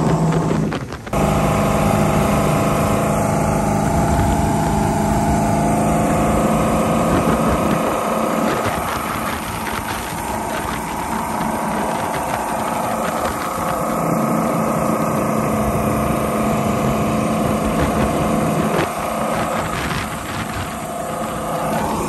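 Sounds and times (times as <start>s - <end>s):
boat engine running: 0.0s - 22.0s
rushing wind and water: 0.0s - 22.0s.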